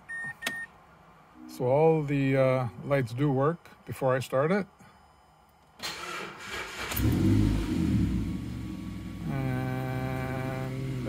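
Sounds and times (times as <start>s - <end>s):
car engine cranking and starting: 5.8s - 11.0s.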